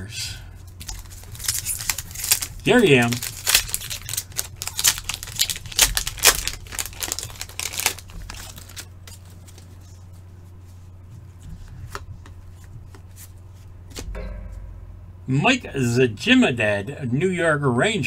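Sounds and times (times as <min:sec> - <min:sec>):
low steady hum: 0:00.0 - 0:18.0
plastic wrapper tearing and crinkling: 0:00.8 - 0:09.7.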